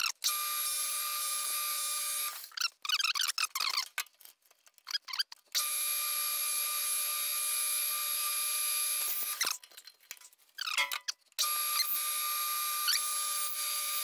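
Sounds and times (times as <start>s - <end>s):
clicks and scrapes: 2.4s - 5.6s, 9.0s - 11.4s.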